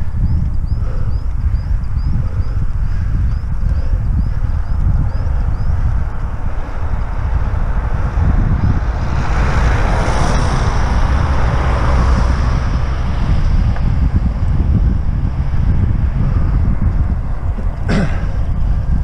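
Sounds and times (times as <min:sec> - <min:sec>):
wind buffeting microphone: 0:00.0 - 0:19.0
car passing: 0:04.4 - 0:19.0.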